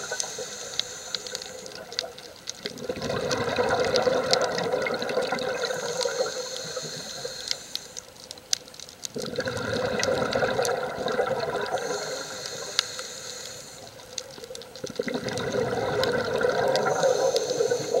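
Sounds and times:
high hiss: 0.0s - 2.4s, 5.5s - 8.4s, 11.6s - 14.4s, 16.6s - 18.0s
exhaled bubbles bursting: 1.6s - 7.3s, 9.1s - 12.6s, 14.0s - 18.0s
diver breathing through regulator: 5.6s - 8.1s, 11.6s - 14.1s, 15.8s - 18.0s.

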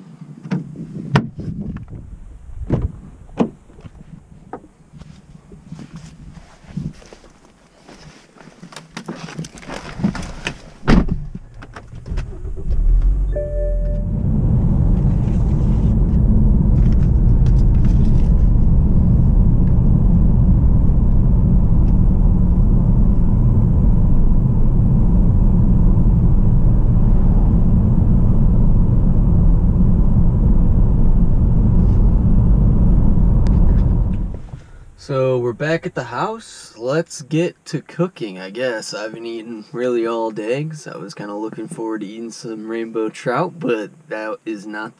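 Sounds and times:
thump: 0.4s - 2.0s, 2.6s - 3.9s, 10.0s - 13.2s
car road and engine rumble: 0.4s - 37.1s
short tone: 13.1s - 16.0s.

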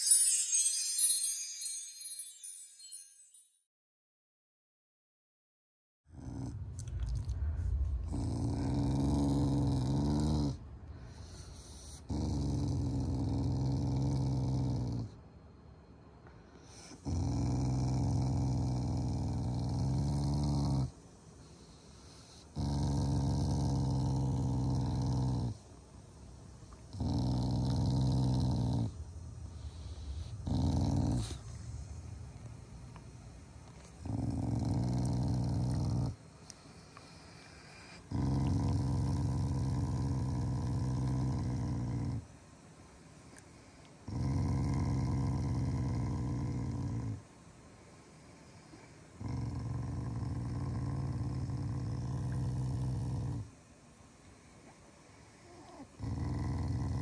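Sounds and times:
dog growling: 6.1s - 10.7s, 11.4s - 15.2s, 16.8s - 21.0s, 22.3s - 25.6s, 26.9s - 29.0s, 29.6s - 31.7s, 33.7s - 42.3s, 44.0s - 47.3s, 48.7s - 53.5s, 55.4s - 57.0s.

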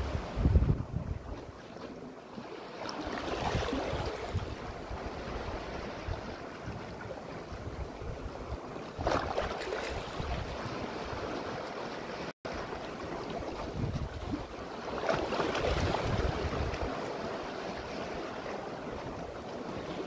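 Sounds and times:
wind buffeting microphone: 0.0s - 1.6s, 3.2s - 11.6s, 13.4s - 14.6s, 15.4s - 19.8s
sea waves washing over rocks: 2.2s - 7.6s, 8.8s - 20.0s.

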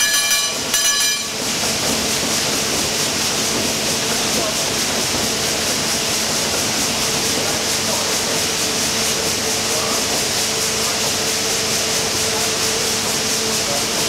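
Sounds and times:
steam engine hiss and clatter: 0.0s - 14.0s.

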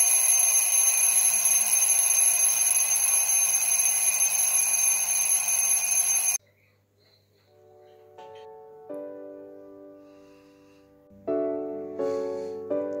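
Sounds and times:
mechanical alarm clock ringing: 0.0s - 6.4s.

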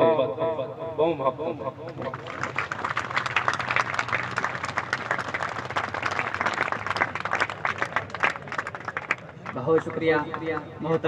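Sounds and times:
audience applauding: 2.0s - 10.4s.

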